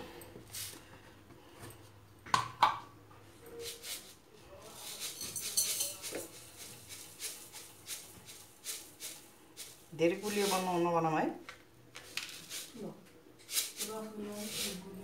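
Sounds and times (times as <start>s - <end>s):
sugar pouring onto metal: 3.6s - 10.8s, 12.0s - 15.0s.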